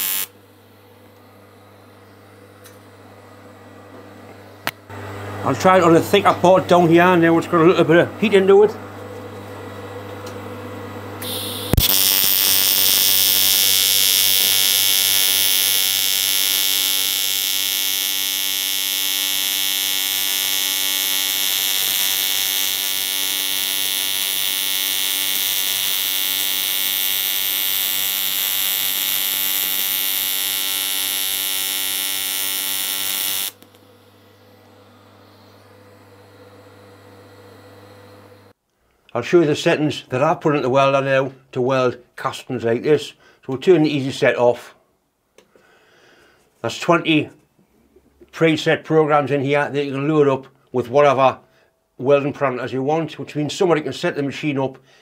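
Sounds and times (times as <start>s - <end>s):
welding arc buzzing: 0.0s - 0.4s, 11.2s - 37.0s
welding arc crack: 0.0s - 0.4s, 11.2s - 33.9s.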